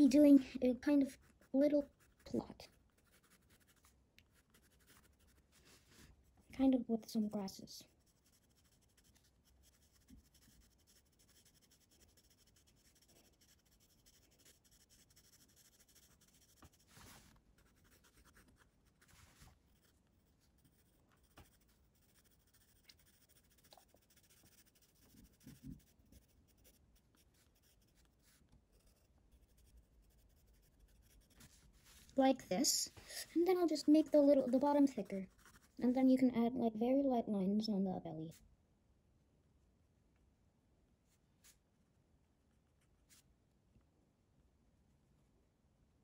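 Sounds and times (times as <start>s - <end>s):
pencil scratching on paper: 1.0s - 6.2s, 7.9s - 32.1s, 33.2s - 36.0s.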